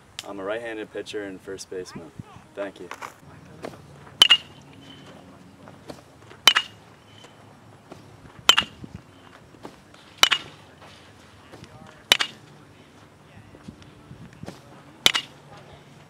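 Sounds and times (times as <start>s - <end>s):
baseball bat cracking ball: 3.6s - 12.6s, 14.4s - 15.6s.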